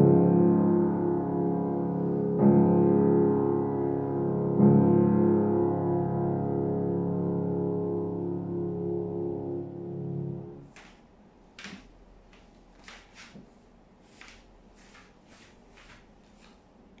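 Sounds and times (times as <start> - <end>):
piano chord ringing: 0.0 - 10.7
soft scuffs: 10.6 - 17.0.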